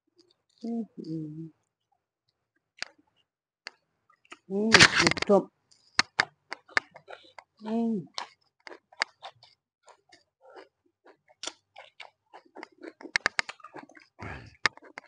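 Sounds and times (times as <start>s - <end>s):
chewing with wet mouth clicks: 2.8s - 3.0s, 3.7s - 4.5s, 5.7s - 15.0s.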